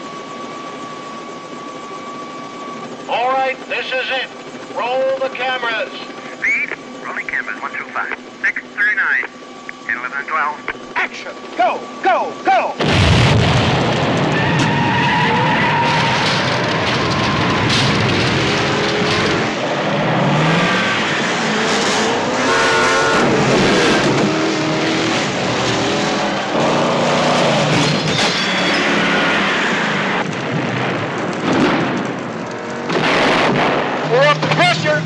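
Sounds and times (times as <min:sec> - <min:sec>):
crashes: 0:12.8 - 0:19.6
explosions: 0:12.8 - 0:19.6, 0:30.2 - 0:32.3, 0:32.9 - 0:34.1
engines revving: 0:12.8 - 0:35.0
tyres squealing and skidding: 0:14.4 - 0:18.0, 0:26.2 - 0:30.2.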